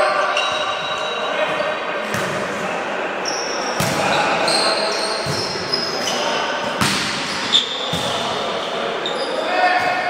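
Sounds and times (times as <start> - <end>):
players' voices: 0.0 - 10.0
sports shoes squeaking on floor: 0.1 - 1.3, 3.2 - 6.6, 7.3 - 9.5.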